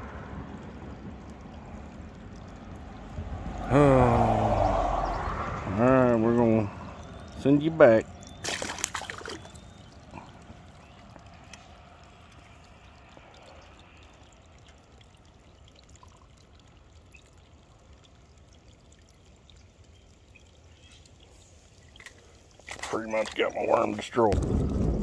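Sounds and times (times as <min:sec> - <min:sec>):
creek water trickling: 0:00.0 - 0:25.0
fish splashing into water: 0:08.2 - 0:14.0.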